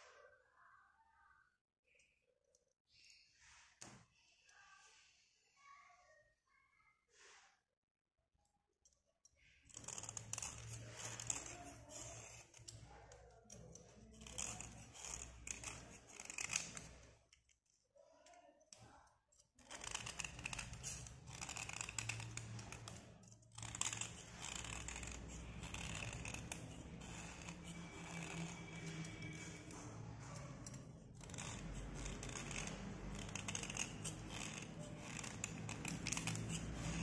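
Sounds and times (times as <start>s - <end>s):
knife scraping slate pencil: 9.4s - 37.0s.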